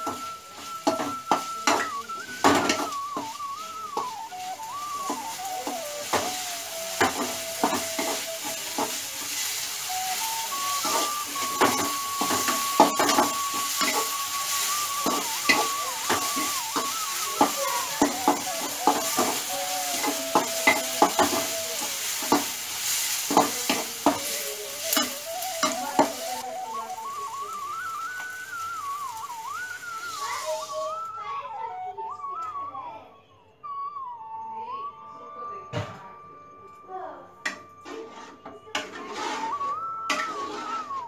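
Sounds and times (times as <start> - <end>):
spoon clinking against pan: 0.0 - 3.4, 10.8 - 22.6
onions sizzling: 0.0 - 32.2, 37.4 - 41.0.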